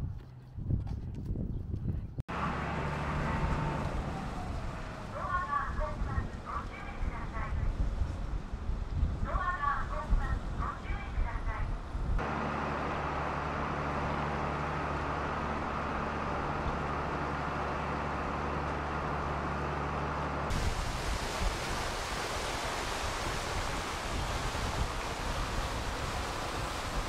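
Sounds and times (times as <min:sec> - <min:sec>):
wind: 0:00.0 - 0:27.0
ferry engine humming: 0:02.3 - 0:21.5
churning water of wake: 0:12.2 - 0:27.0.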